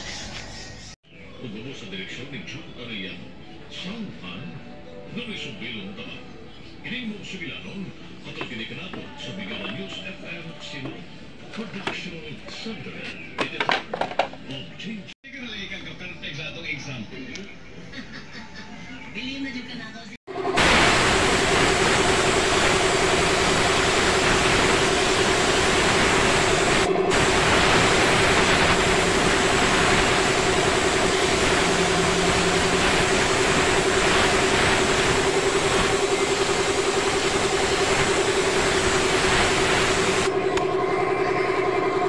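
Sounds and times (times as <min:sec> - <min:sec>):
motor hum: 0:20.3 - 0:42.0
spray gun hissing: 0:20.4 - 0:40.3.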